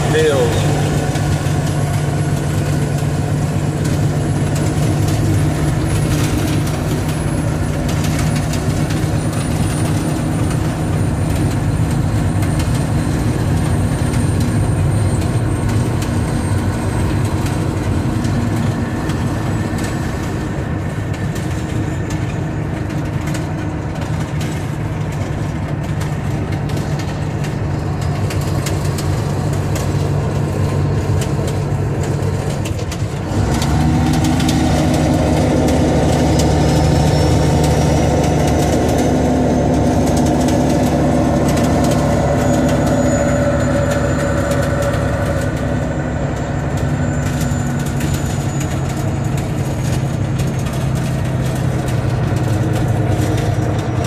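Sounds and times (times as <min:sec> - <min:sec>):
diesel truck engine running: 0:00.0 - 0:54.0
tyres on dirt road: 0:00.0 - 0:54.0
cab clicks and rattles: 0:20.8 - 0:54.0.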